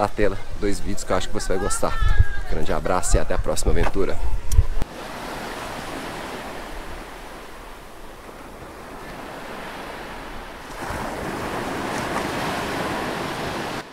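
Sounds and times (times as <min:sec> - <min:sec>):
wind on microphone: 0:00.0 - 0:04.9
ocean surf on a beach: 0:00.0 - 0:13.9.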